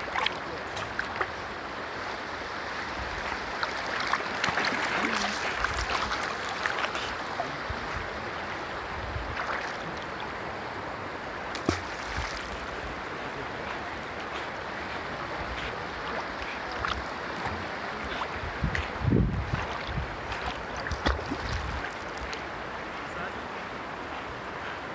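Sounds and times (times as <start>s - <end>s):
small water splashes: 0.0s - 1.4s, 3.2s - 7.9s, 9.3s - 10.2s, 11.5s - 13.0s, 16.0s - 22.4s
shallow river water flowing: 0.0s - 24.9s
sharp splash or knock: 11.5s - 12.6s, 20.8s - 21.7s.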